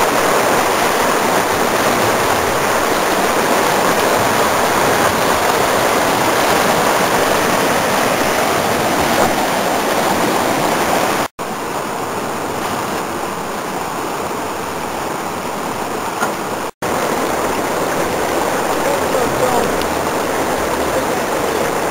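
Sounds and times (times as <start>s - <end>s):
whitewater rushing: 0.0s - 21.9s.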